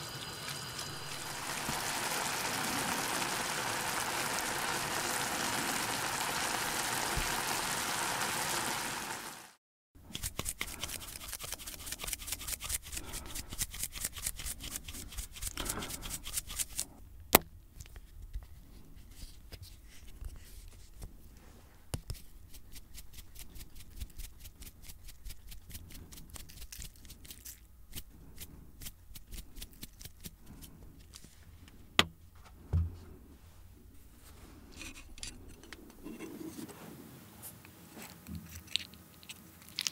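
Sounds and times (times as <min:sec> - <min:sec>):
noodles sizzling in pan: 0:00.0 - 0:09.6.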